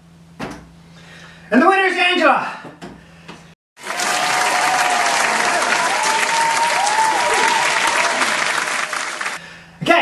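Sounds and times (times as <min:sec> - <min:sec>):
crowd applauding: 0:03.8 - 0:09.4.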